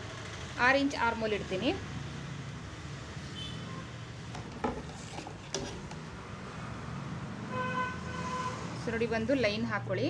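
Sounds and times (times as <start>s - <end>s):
ruler knocking on table: 4.4s - 6.0s.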